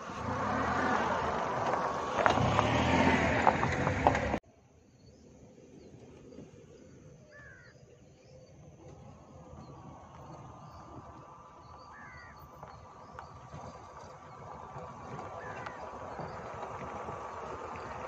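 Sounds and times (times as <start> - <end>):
loud vehicle sound: 0.0 - 4.4
car engine approaching slowly: 0.0 - 18.0
faint insects buzzing: 4.6 - 13.6
bird calling: 7.2 - 8.5, 11.6 - 13.6, 15.1 - 16.3.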